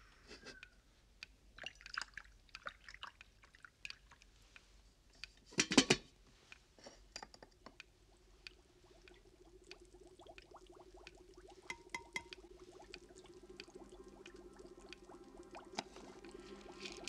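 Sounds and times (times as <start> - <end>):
water poured into a cup: 1.6 - 4.2, 8.6 - 17.0
low steady hum: 3.6 - 17.0.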